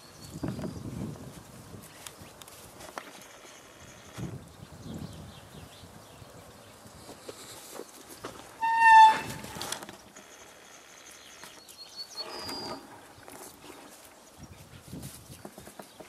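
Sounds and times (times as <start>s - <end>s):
deer whistle-like squeal: 8.6s - 9.6s.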